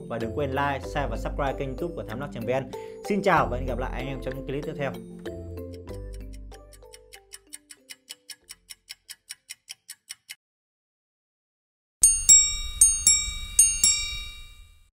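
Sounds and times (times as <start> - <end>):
clock-like ticking: 5.6 - 10.4
bright bell-like chime: 12.0 - 14.9.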